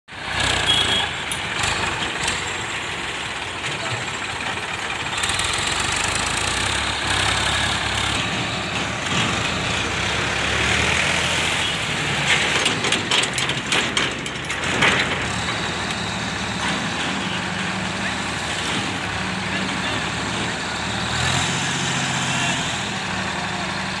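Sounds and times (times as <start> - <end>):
tractor diesel engine running: 0.1 - 24.0
rattling knocks: 12.2 - 15.6.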